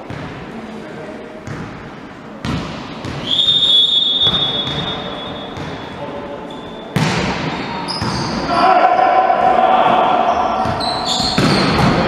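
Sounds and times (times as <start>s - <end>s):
referee's whistle: 3.2s - 5.6s, 10.8s - 11.7s.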